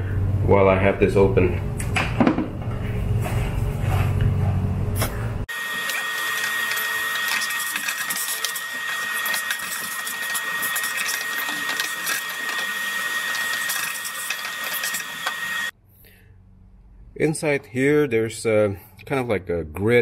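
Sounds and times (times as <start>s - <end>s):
vacuum cleaner motor whine: 5.5s - 15.7s.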